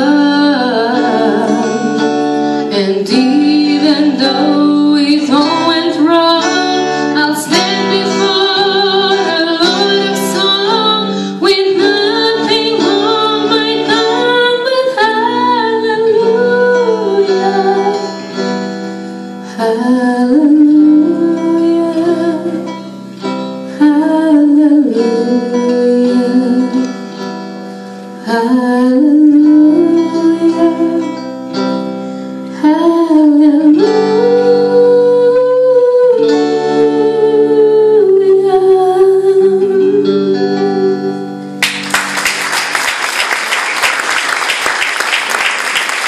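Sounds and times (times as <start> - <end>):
instrumental accompaniment: 0.0 - 46.0
woman singing long notes: 32.6 - 41.4
audience applause: 41.6 - 46.0.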